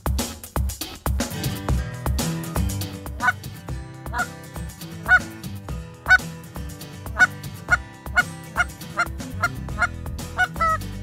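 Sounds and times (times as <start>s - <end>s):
goose call honks and clucks: 3.2s - 3.5s, 4.1s - 4.4s, 5.0s - 5.4s, 6.1s - 6.3s, 7.1s - 11.0s.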